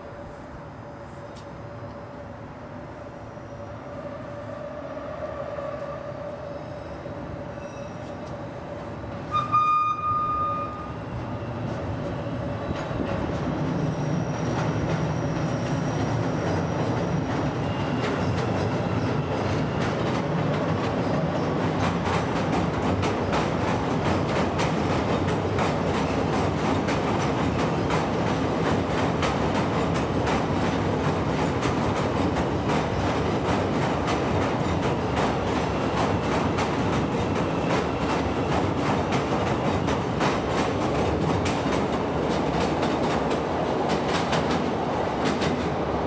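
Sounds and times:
loud train tone: 0.0s - 23.6s
train rumbling past: 0.0s - 46.0s.

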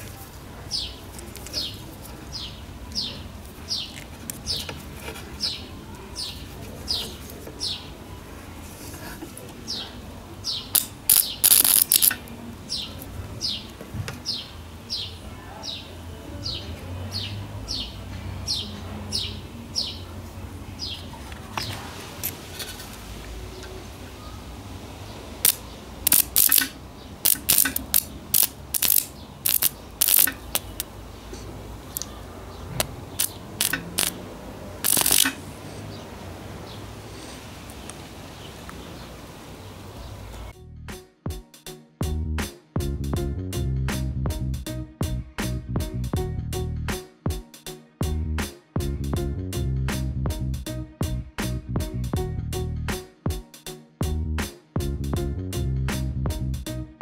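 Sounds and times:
bird chirping: 0.7s - 4.8s, 9.7s - 20.1s, 25.1s - 34.2s, 37.7s - 40.5s
welder arc crackling: 10.7s - 12.3s, 25.4s - 30.9s, 33.2s - 34.2s, 34.8s - 35.4s.

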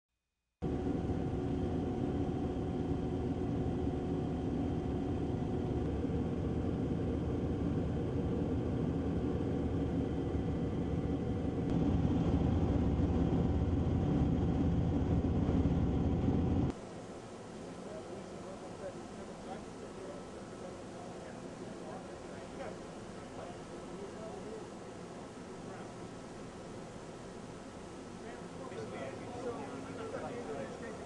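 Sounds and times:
engine rumble with hum: 0.6s - 16.8s.

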